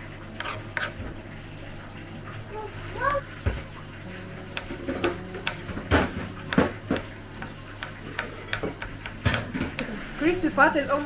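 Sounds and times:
knife chopping on wooden board: 4.6s - 10.0s.

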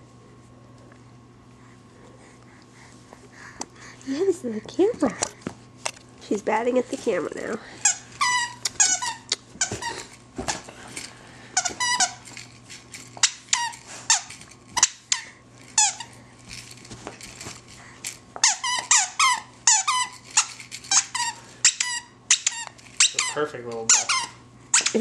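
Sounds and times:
dog toy squeaking: 7.8s - 10.0s, 11.6s - 12.2s, 18.4s - 25.0s.

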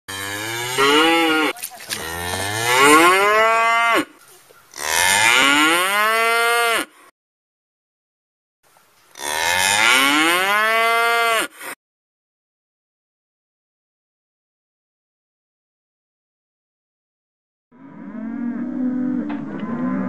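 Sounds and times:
cow mooing: 0.1s - 7.0s, 9.2s - 11.6s, 17.8s - 20.0s.

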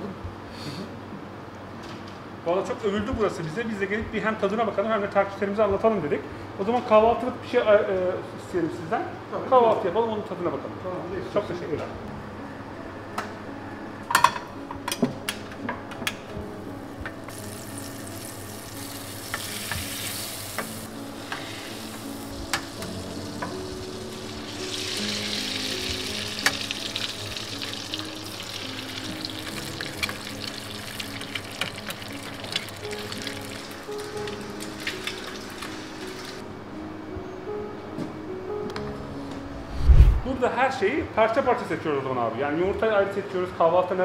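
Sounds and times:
soft background music: 0.0s - 44.0s
eggs sizzling in a pan: 16.8s - 36.4s.

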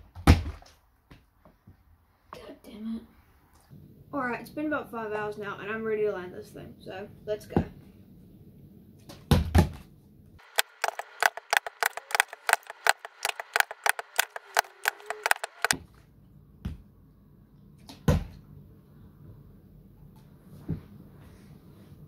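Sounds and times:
plastic bottles clicking and knocking: 10.4s - 15.7s.

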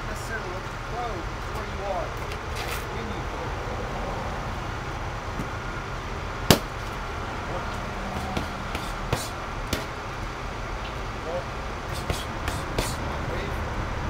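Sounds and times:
punches smacking into mitts: 6.5s - 6.7s, 8.1s - 10.0s.

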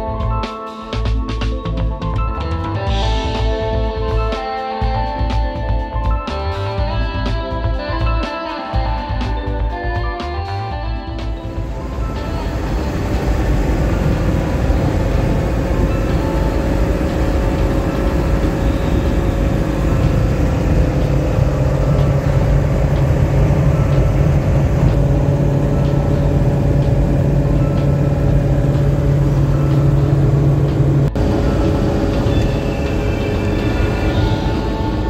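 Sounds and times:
diesel engine droning: 11.0s - 35.0s
road and wind noise: 11.1s - 35.0s
steady low hum: 11.3s - 35.0s.

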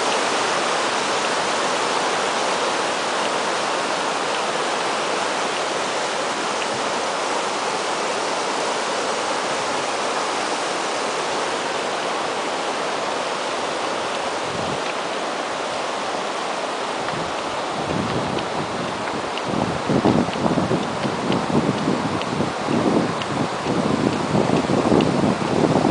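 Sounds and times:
river water rushing: 0.0s - 25.9s
wind buffeting microphone: 14.3s - 15.3s, 16.9s - 25.9s.

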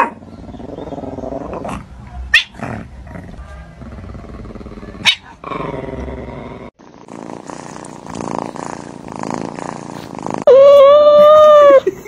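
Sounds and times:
cat purring: 5.8s - 10.5s.

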